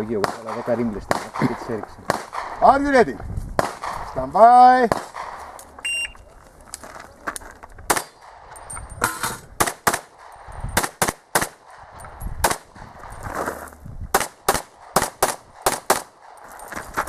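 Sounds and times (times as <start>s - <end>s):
pistol shots: 0.1s - 2.6s, 3.6s - 4.1s, 4.8s - 5.6s, 7.9s - 8.5s, 9.1s - 12.9s, 14.1s - 16.4s.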